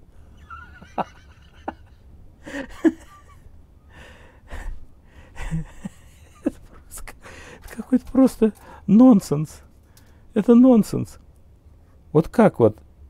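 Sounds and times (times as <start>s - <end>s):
person breathing: 2.4s - 2.8s, 3.8s - 5.7s, 6.8s - 7.7s, 8.6s - 8.9s, 9.7s - 10.3s.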